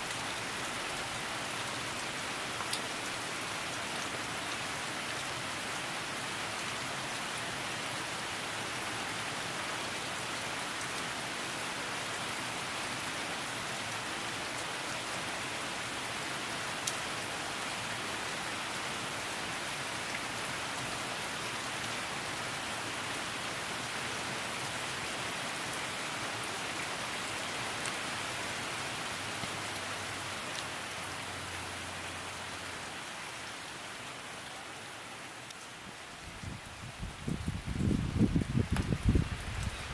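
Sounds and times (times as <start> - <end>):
steady rain falling: 0.0 - 39.9
raindrop clicks: 38.2 - 39.8.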